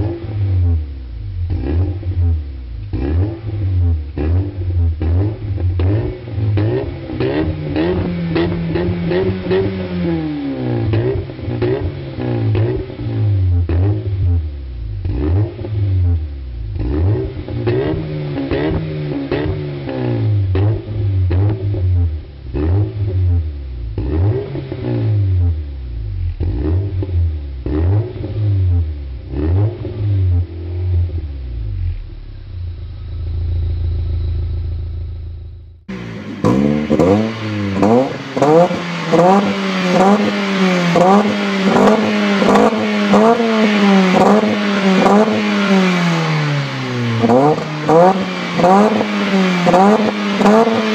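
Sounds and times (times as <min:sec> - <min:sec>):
car engine revving: 0:00.0 - 0:50.9
car engine idling: 0:28.6 - 0:50.9.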